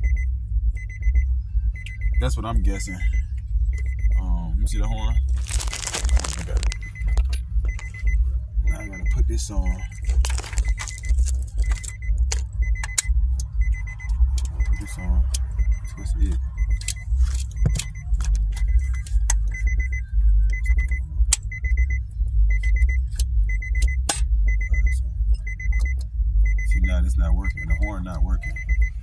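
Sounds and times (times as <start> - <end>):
car warning chime beeping: 0.0 - 29.0
low rumble: 0.0 - 29.0
steering wheel hub clicks and knocks: 10.0 - 14.6.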